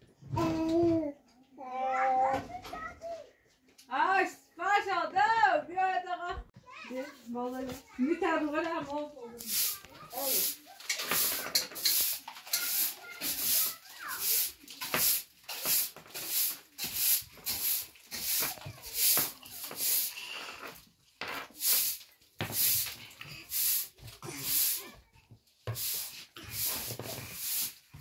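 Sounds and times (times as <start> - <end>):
broom sweeping earth floor: 9.2 - 28.0.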